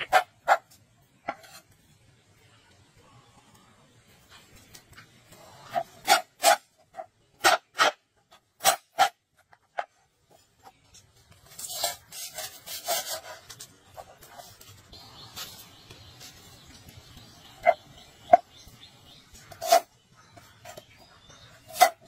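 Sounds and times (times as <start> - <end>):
cleaver scraping wooden board: 0.0 - 1.7, 5.6 - 10.0, 11.4 - 15.8, 19.3 - 22.0
stalk rubbing on board: 11.4 - 18.4, 19.3 - 19.9, 21.6 - 22.0.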